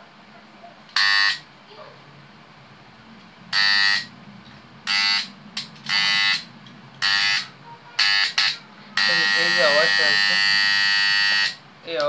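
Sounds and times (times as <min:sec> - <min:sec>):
contactor coil buzzing: 0:01.0 - 0:01.5, 0:03.5 - 0:04.2, 0:04.8 - 0:11.7.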